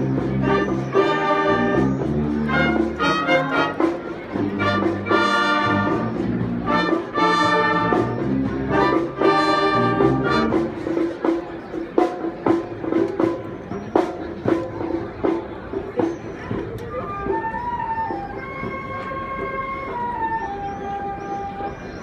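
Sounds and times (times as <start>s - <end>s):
wind band playing: 0.0s - 11.4s, 16.9s - 21.8s.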